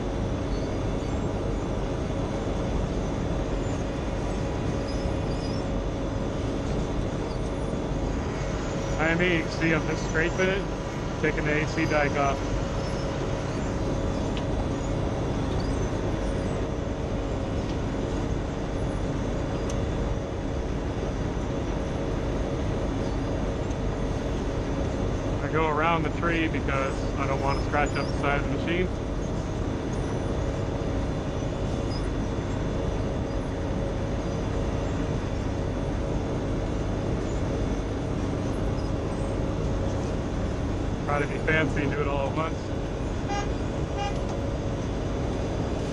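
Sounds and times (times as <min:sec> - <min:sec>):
asphalt milling machine droning: 0:00.0 - 0:45.9
steady tone: 0:00.8 - 0:21.0, 0:30.9 - 0:45.9.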